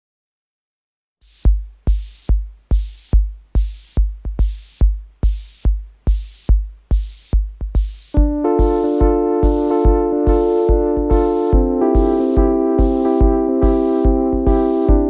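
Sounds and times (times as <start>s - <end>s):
drum machine kick: 1.2s - 15.0s
synth chords: 8.2s - 15.0s.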